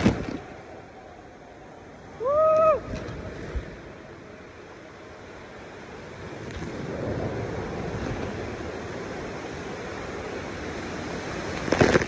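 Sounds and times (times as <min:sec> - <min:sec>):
water rushing under raft: 0:00.0 - 0:12.0
person shouting whoa: 0:02.2 - 0:02.9.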